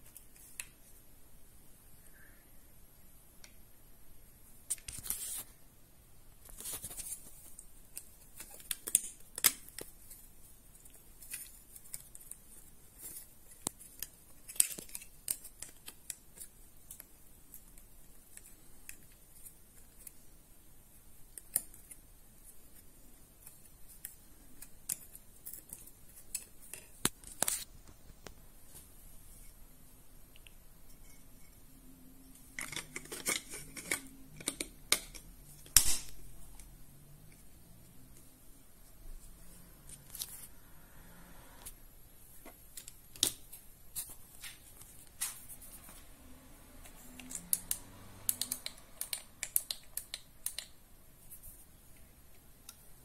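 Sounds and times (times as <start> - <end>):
sharp plastic clicks: 47.2 - 50.8.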